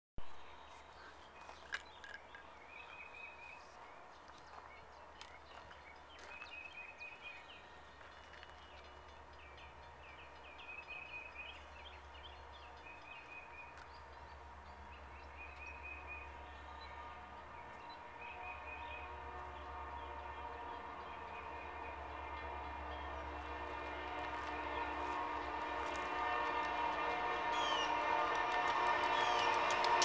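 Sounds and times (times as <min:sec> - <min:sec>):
diesel freight train rumble: 0:00.2 - 0:30.0.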